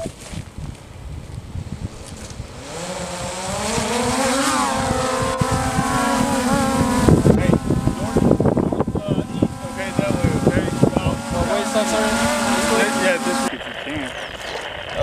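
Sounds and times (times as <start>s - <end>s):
wind buffeting microphone: 0.0s - 15.0s
drone propellers buzzing: 1.7s - 15.0s.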